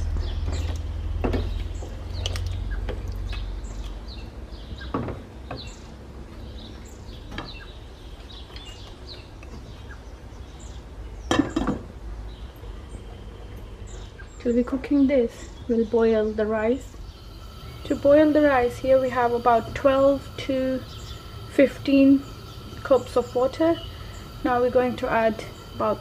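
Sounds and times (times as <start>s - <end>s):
small birds chirping: 0.0s - 26.0s
low hum: 16.9s - 26.0s.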